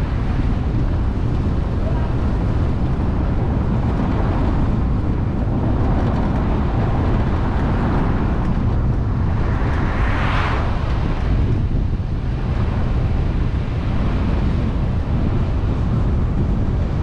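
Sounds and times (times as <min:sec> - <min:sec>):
car road and wind noise: 0:00.0 - 0:17.0
brief whoosh: 0:09.6 - 0:10.9.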